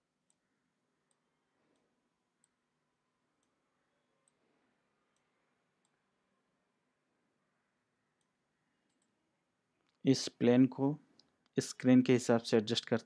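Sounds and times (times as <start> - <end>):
computer mouse clicks: 3.4 - 3.6, 5.1 - 6.0, 8.2 - 9.2.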